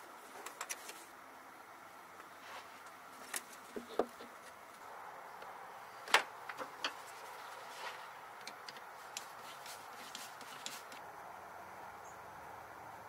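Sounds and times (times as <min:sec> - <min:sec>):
faint steady hiss: 0:00.0 - 0:13.0
hand tools clicking and tapping: 0:06.5 - 0:07.1, 0:08.4 - 0:11.0.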